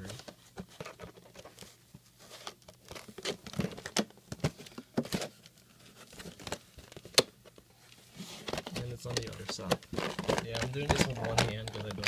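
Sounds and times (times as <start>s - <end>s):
plastic packaging crinkling: 2.3s - 7.2s, 8.4s - 12.0s.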